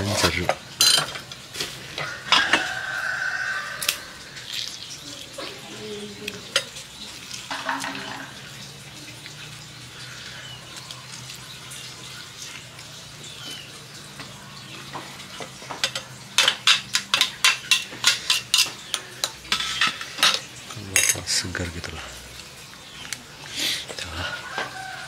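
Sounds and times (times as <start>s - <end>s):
metal spoon clinking glass bowl: 7.4s - 8.5s, 15.7s - 21.4s.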